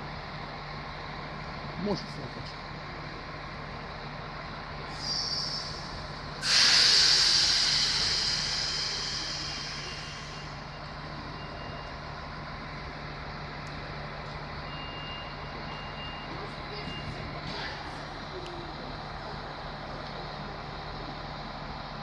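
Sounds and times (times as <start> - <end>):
air hissing: 4.9 - 10.6
loud blast of air: 5.0 - 10.6
faint high beeps: 9.9 - 12.0, 14.7 - 17.2.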